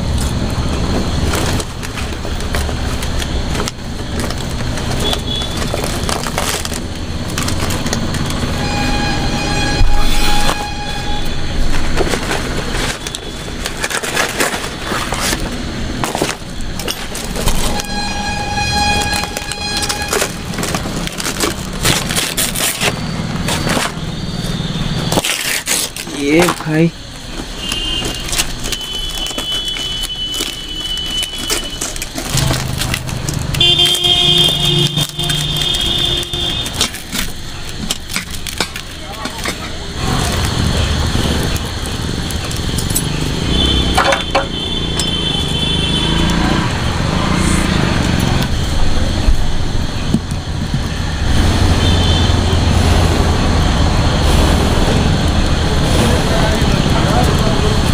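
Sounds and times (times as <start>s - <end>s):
banana leaves crinkling: 0.0s - 57.9s
steady high tone: 8.2s - 11.9s, 17.4s - 21.7s.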